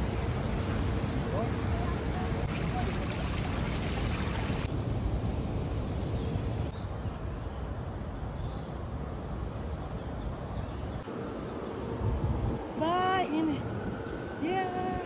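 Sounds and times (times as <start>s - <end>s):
fountain water splashing: 2.4s - 4.7s.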